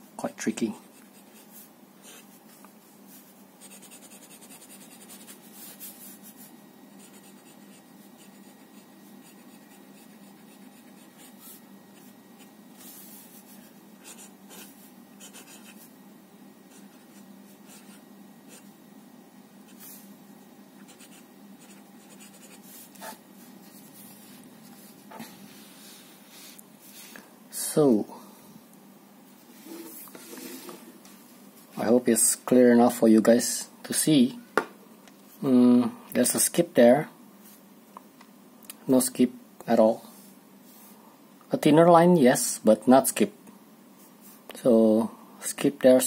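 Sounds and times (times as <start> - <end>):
steady low hum: 0.0 - 45.6
pen nib scratching on paper: 3.6 - 5.8, 7.0 - 12.1, 13.5 - 15.9, 20.8 - 23.2.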